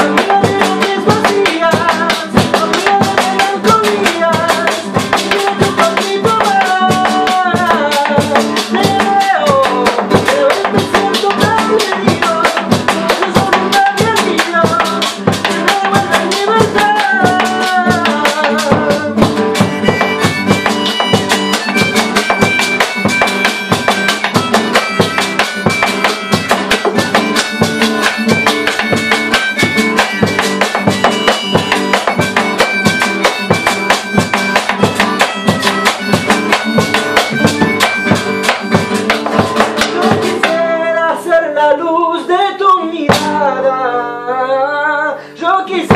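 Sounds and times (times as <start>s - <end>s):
bass drum beaten with sticks: 0.0s - 40.7s
strummed nylon-string guitar: 0.0s - 45.9s
harmonica melody: 14.5s - 41.0s
guiro scraping: 19.4s - 40.6s.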